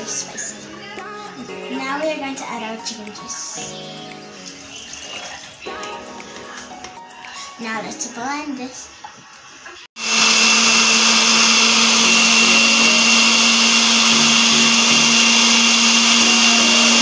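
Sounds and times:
blender motor whirring: 10.0s - 17.0s.

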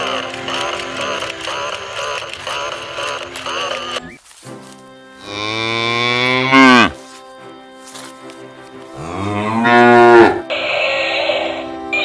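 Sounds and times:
cow mooing: 5.2s - 7.0s, 8.9s - 10.5s.

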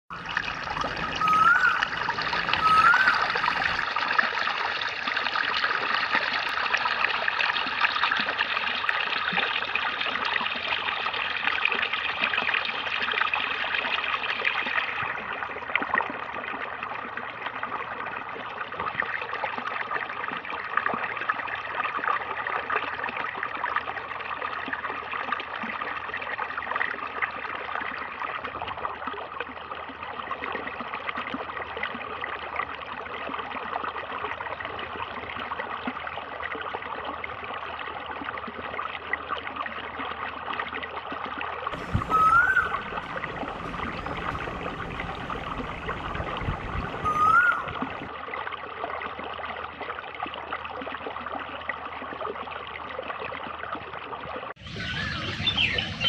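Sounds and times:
water splashing into standing water: 0.1s - 16.1s, 41.7s - 48.2s
water gushing from a pipe: 0.1s - 56.0s.

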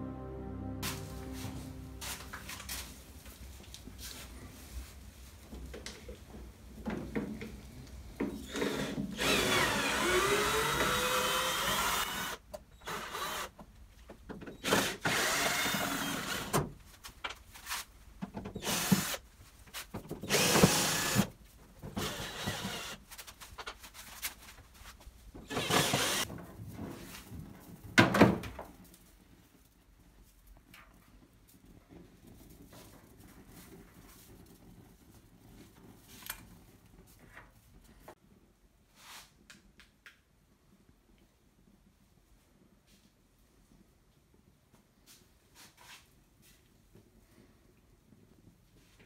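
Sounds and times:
cordless drill running: 8.4s - 13.5s, 14.6s - 16.6s, 18.6s - 19.2s, 20.3s - 21.3s, 22.0s - 23.0s, 25.5s - 26.2s.

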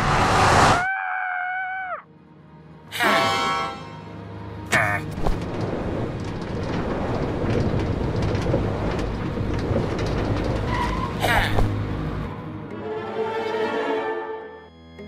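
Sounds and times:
scattered crackles: 5.0s - 11.8s
low rumbling noise: 5.1s - 12.7s.

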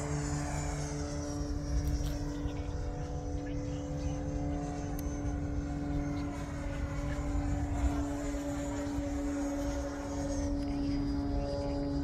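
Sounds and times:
model jet fan whining: 0.0s - 12.0s.

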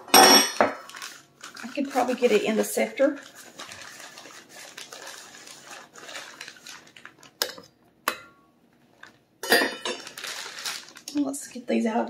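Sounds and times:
cup scooping sugar: 0.8s - 7.4s
plastic bag crinkling: 0.8s - 7.6s, 8.9s - 11.6s.

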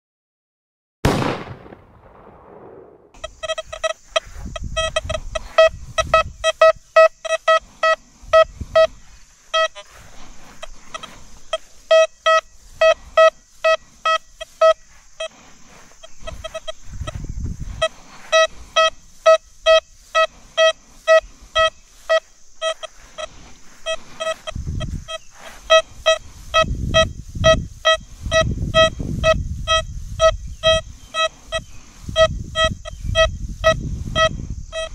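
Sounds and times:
metal detector short beeps: 3.2s - 15.4s, 16.0s - 34.9s
steady high hiss: 3.2s - 33.8s.

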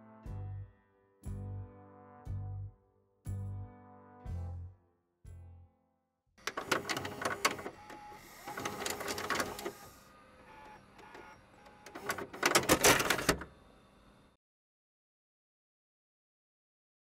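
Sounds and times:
rapid mechanical clicking and clattering: 6.4s - 13.5s.

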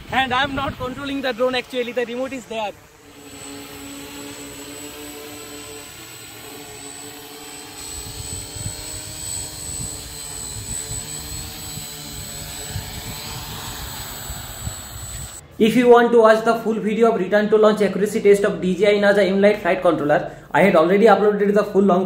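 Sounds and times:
drone propellers whirring: 1.0s - 15.4s
low gusty rumble: 7.8s - 15.4s.

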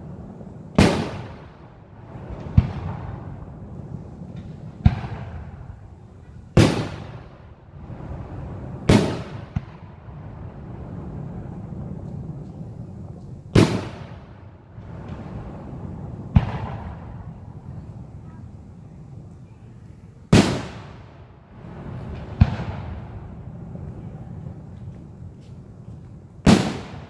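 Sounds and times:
fireworks booming: 0.0s - 18.4s, 20.2s - 27.0s.

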